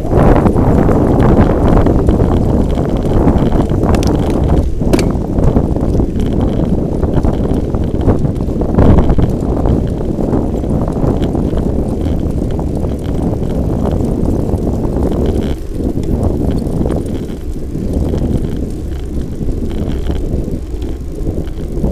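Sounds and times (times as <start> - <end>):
tyres humming on asphalt: 0.0 - 21.9
wind buffeting microphone: 0.0 - 21.9.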